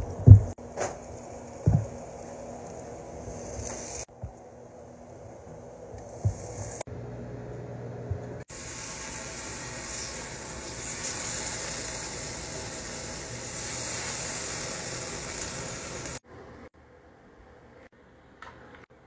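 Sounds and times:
bacon sizzling on a griddle: 1.0s - 4.1s, 8.5s - 16.2s.

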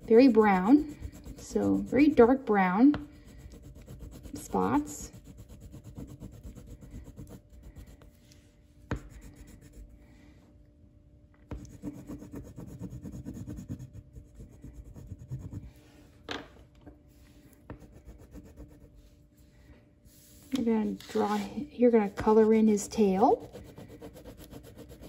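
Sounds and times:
pencil scratching on paper: 0.0s - 8.1s, 8.9s - 9.9s, 11.5s - 15.9s, 17.7s - 19.1s, 22.0s - 25.0s.

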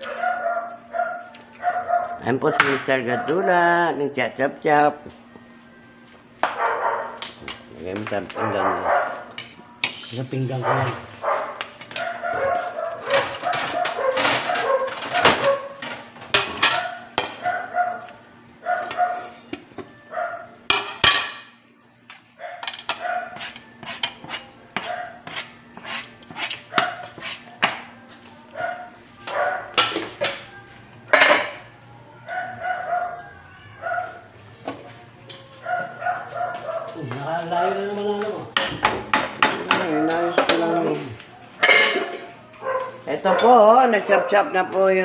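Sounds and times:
dog barking: 0.0s - 2.2s, 3.0s - 3.6s, 6.4s - 7.2s, 8.4s - 9.3s, 10.6s - 15.8s, 16.7s - 19.3s, 20.1s - 20.5s, 22.4s - 23.4s, 24.8s - 25.2s, 26.7s - 27.1s, 28.6s - 29.8s, 32.3s - 34.3s, 35.6s - 37.0s, 42.6s - 44.5s.

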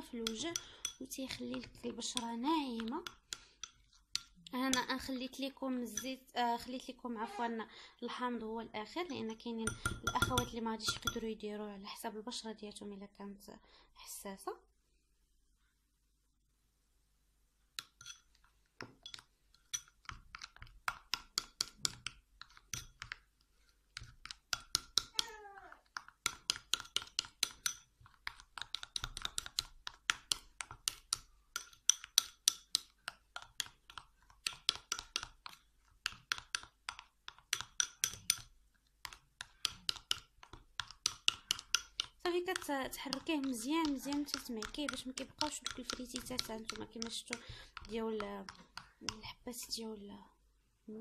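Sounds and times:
spoon scraping glass bowl: 0.0s - 5.1s, 9.0s - 11.3s, 17.8s - 18.4s, 19.0s - 20.7s, 37.5s - 38.5s.

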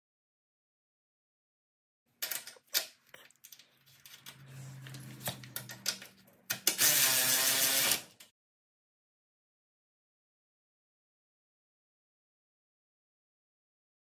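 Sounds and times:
small metal parts clicking: 2.2s - 4.4s.

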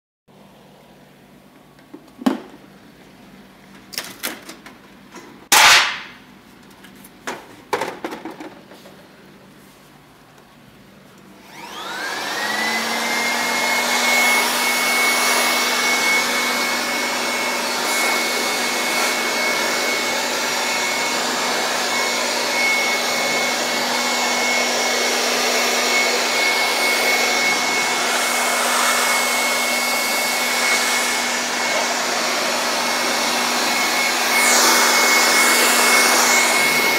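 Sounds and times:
electric dust blower whine: 11.3s - 36.9s.

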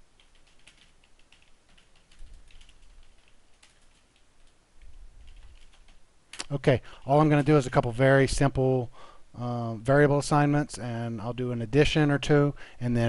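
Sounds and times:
typing on computer keyboard: 0.2s - 6.5s.

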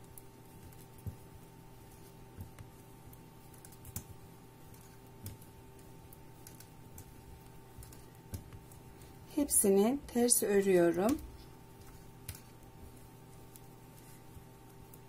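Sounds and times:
steady low hum: 0.0s - 15.0s
knitting needles clicking: 1.8s - 9.2s, 10.5s - 12.7s.

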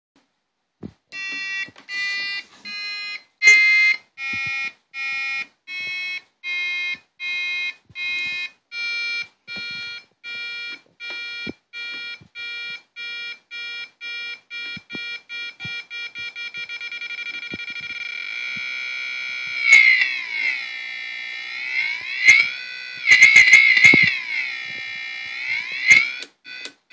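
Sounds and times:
buzzy electronic beeps: 14.1s - 26.7s.

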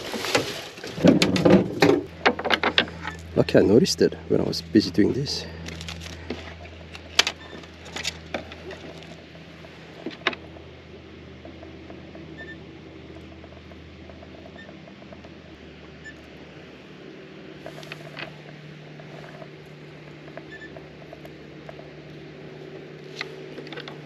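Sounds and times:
steady low hum: 0.0s - 24.0s
sharp clicks and knocks: 1.0s - 3.3s.

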